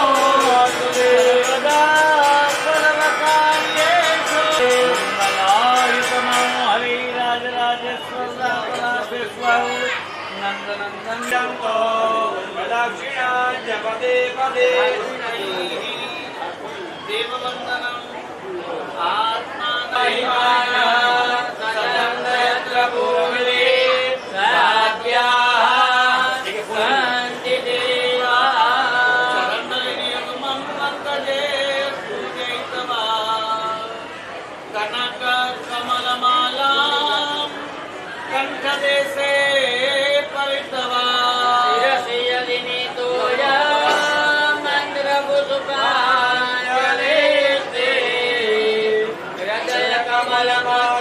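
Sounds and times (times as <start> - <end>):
person chanting: 0.0 - 8.0.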